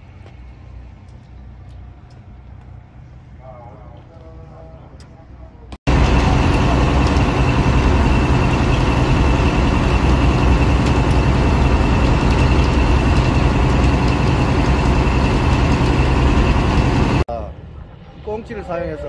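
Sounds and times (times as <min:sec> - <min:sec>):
wind: 0:00.0 - 0:19.0
water rushing: 0:05.9 - 0:17.2
boat engine drone: 0:05.9 - 0:17.3
thin steady whine: 0:05.9 - 0:17.3.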